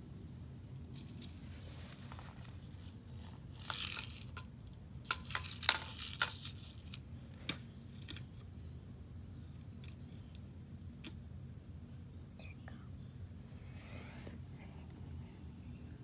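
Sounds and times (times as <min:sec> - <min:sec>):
faint low hum: 0:00.0 - 0:16.0
rustling: 0:00.8 - 0:04.4.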